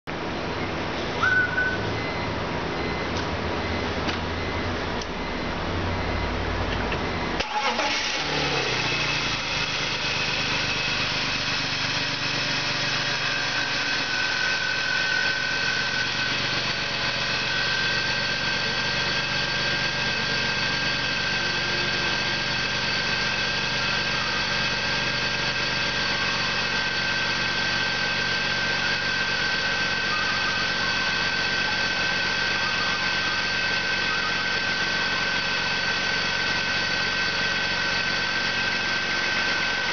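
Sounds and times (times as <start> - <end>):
car engine idling: 0.1 - 39.9
thin steady whine: 9.0 - 39.9.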